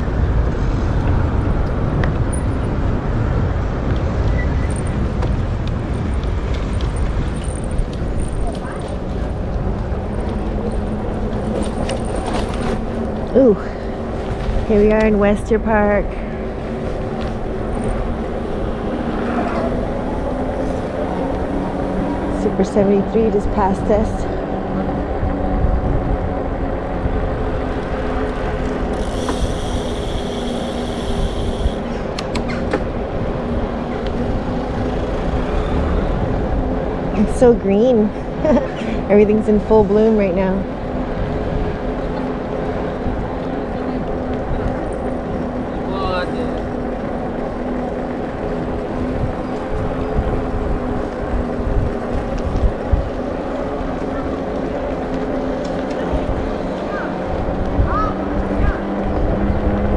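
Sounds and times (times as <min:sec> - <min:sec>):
tyres and wind rumble: 0:00.0 - 0:59.9
bicycle drivetrain ticking whirr: 0:01.0 - 0:37.1, 0:40.7 - 0:59.9.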